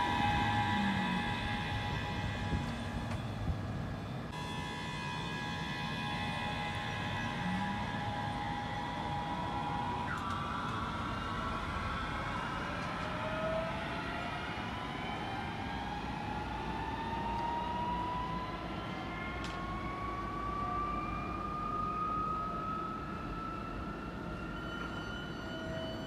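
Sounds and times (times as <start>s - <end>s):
electric train motor whine: 0.0s - 26.0s.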